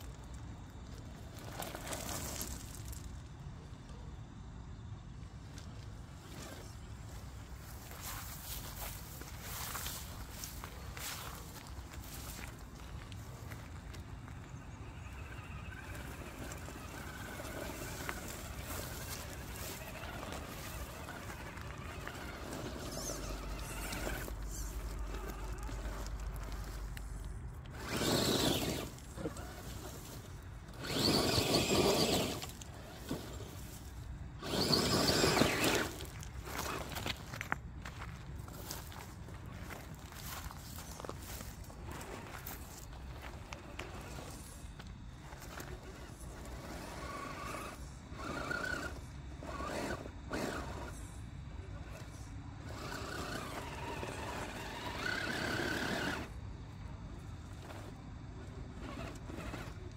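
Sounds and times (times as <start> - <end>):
tyres scrabbling on gravel: 0.0 - 4.1, 5.4 - 59.9
electric motor whining: 8.8 - 37.2, 41.2 - 56.4, 57.5 - 59.9.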